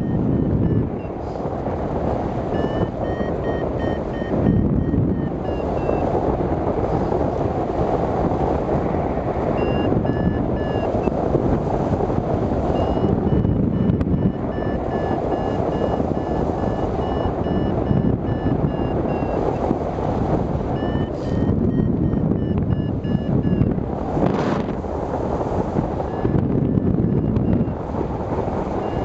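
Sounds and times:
electronic beeps: 0.0 - 1.2, 2.4 - 6.1, 9.6 - 11.2, 12.7 - 19.6, 20.8 - 23.7, 26.1 - 27.8, 28.8 - 29.0
wind rushing over microphone: 0.0 - 29.0.

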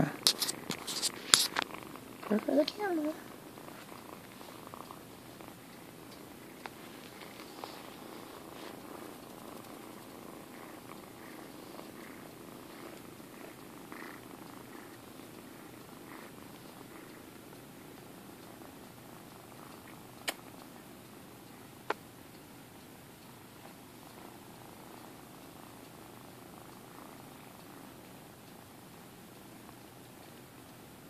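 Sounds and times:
kittens purring: 0.0 - 31.0
sharp clicks: 19.8 - 20.8.

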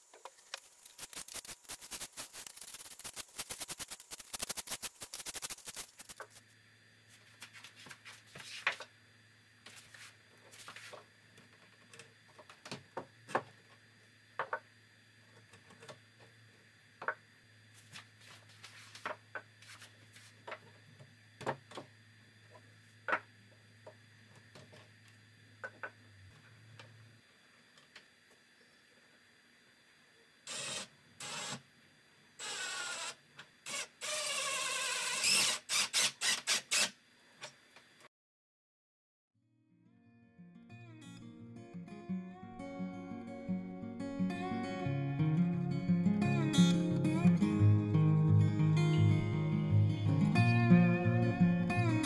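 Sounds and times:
sandpaper sanding wood: 1.0 - 6.4.

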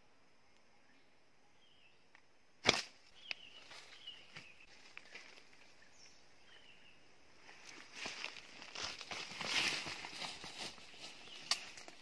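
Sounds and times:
slingshot band snapping: 2.6 - 3.4.

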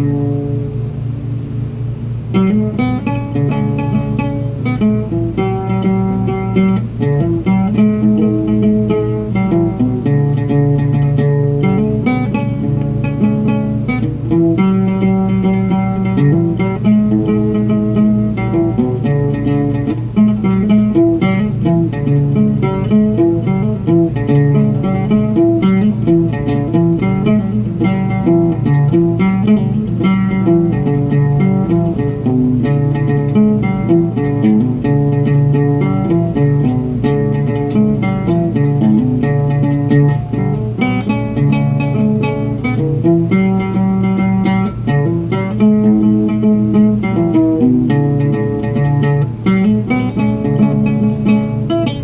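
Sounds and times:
plucked oud melody: 0.0 - 0.7, 2.3 - 52.0.

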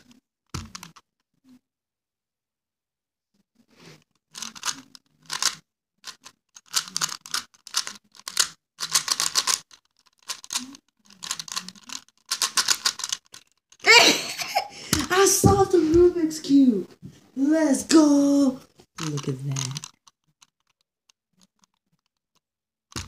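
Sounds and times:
plastic cube clicking and rattling: 0.0 - 1.0, 4.0 - 13.9, 18.8 - 23.0
excited voice: 13.9 - 18.6.

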